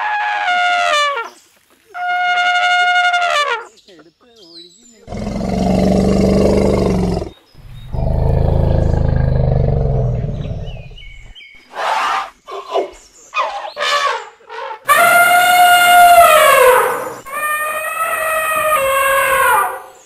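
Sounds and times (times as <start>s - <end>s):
elephant trumpeting: 5.1s - 11.0s, 13.4s - 20.0s
elephant low roars: 5.1s - 11.4s
elephant squeaky calls: 13.4s - 20.0s.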